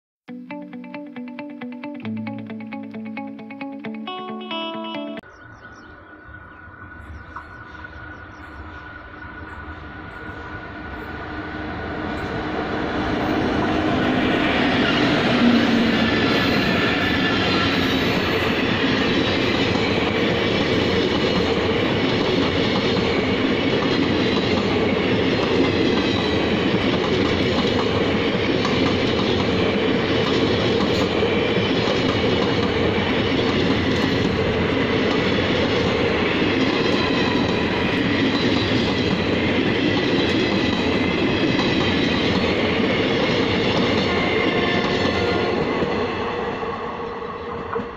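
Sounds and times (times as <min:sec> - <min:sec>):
train wheels clattering on rails: 0:13.2 - 0:46.7.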